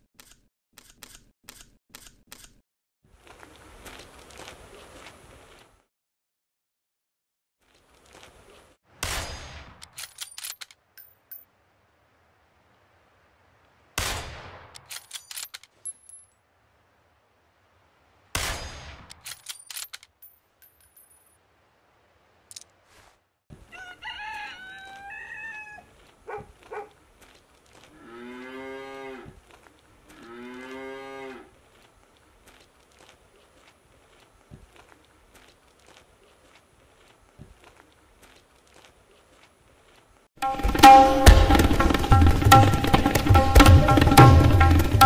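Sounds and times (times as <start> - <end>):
sharp high clicks: 0.2 - 2.6
long drawn-out animal calls: 23.7 - 26.9.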